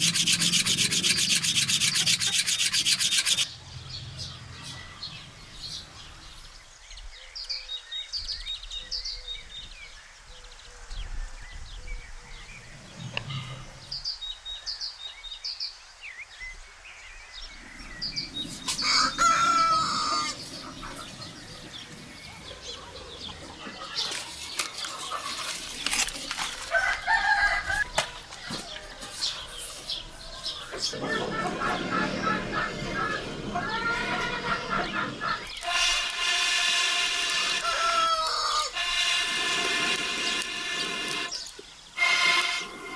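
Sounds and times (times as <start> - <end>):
small birds chirping: 0.0 - 27.5, 39.4 - 42.9
chickens clucking: 18.1 - 35.8
rooster crowing: 18.8 - 20.4, 26.7 - 28.9, 37.5 - 38.8.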